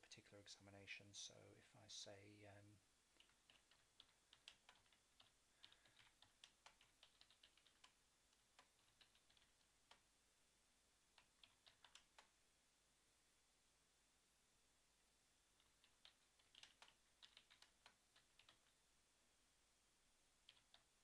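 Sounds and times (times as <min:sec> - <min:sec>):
faint keyboard typing: 0:01.8 - 0:10.1, 0:11.1 - 0:12.4, 0:15.5 - 0:18.8, 0:20.4 - 0:21.0.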